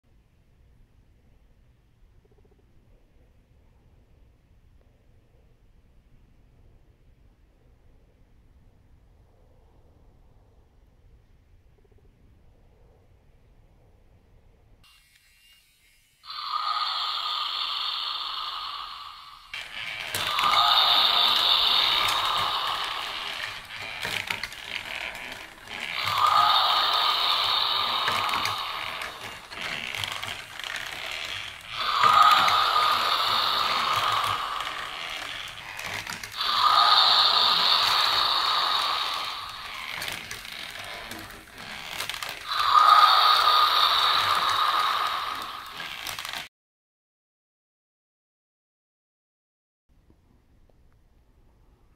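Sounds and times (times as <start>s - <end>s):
toy motor and gears whirring: 14.8s - 46.5s
recorded roar from toy speaker: 16.3s - 46.5s.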